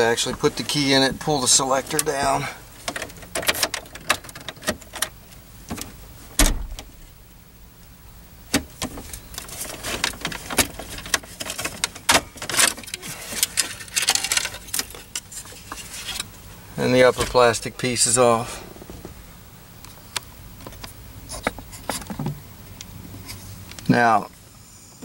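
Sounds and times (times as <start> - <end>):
clicks and plastic rattles: 2.8 - 5.9, 8.5 - 16.3.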